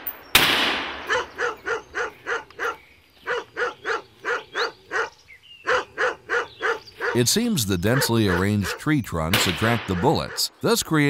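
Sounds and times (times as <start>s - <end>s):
rifle shot echoing: 0.0s - 1.4s, 9.3s - 10.2s
dog barking: 1.1s - 8.9s, 9.9s - 10.5s.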